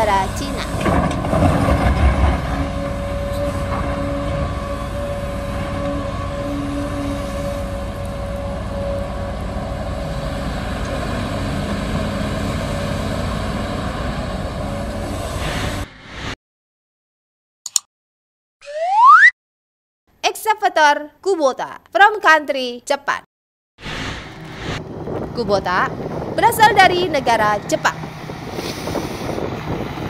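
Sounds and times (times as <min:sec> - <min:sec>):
excavator engine running: 0:00.0 - 0:16.0, 0:23.8 - 0:30.0.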